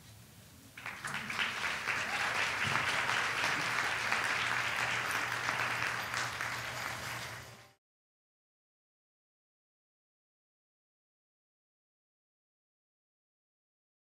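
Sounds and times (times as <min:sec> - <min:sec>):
audience applauding: 0:00.8 - 0:07.8.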